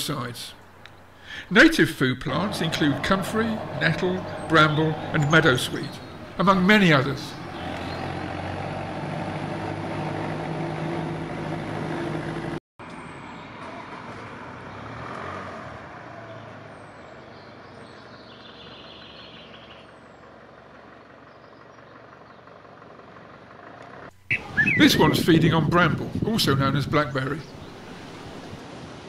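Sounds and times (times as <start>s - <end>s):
outdoor background noise: 0.0s - 29.0s
vehicle engine humming: 0.5s - 13.2s, 18.0s - 25.2s.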